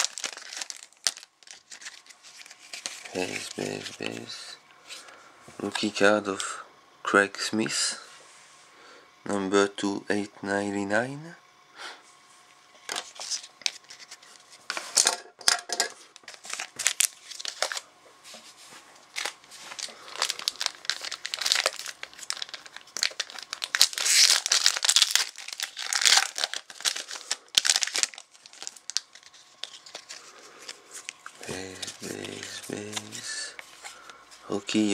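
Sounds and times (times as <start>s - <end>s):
card pack wrapper crinkling: 0.0s - 4.4s, 12.9s - 15.0s, 16.2s - 17.9s, 19.1s - 34.2s.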